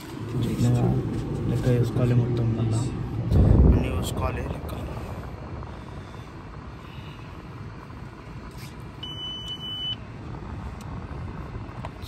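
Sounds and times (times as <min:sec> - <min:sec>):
low rumble inside car: 0:00.0 - 0:12.0
high-pitched beep: 0:09.0 - 0:10.0.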